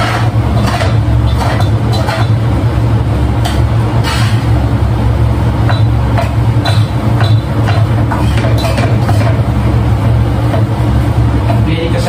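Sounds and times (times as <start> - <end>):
metal spatula scraping frying pan: 0.0 - 2.4, 4.0 - 4.5
loud steady low hum: 0.0 - 12.0.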